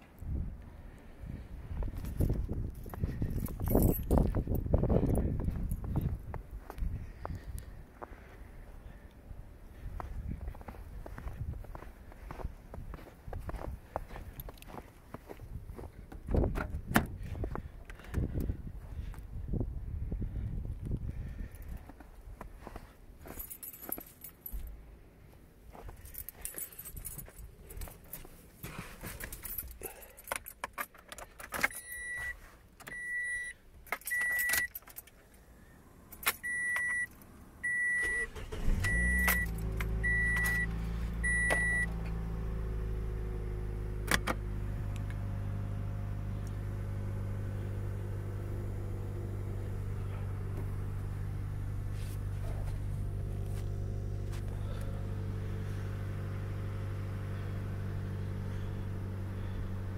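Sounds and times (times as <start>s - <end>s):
car engine starting and idling: 0.5s - 19.2s, 32.9s - 59.9s
keys jangling: 2.0s - 6.0s, 23.2s - 24.7s, 25.7s - 32.0s, 33.9s - 35.2s.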